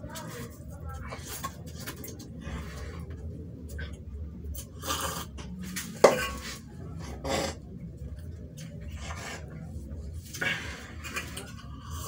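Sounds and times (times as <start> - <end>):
dishes scraping and knocking: 5.8 - 7.6.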